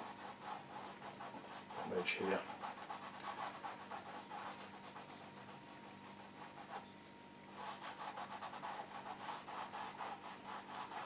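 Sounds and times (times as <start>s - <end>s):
fingertip rubbing on canvas: 0.0s - 6.8s, 7.6s - 11.0s.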